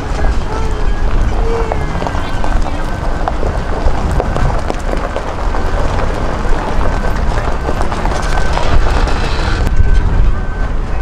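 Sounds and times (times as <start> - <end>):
truck driving on gravel: 0.0 - 11.0
wind on microphone: 0.0 - 11.0
faint high beep: 8.1 - 11.0.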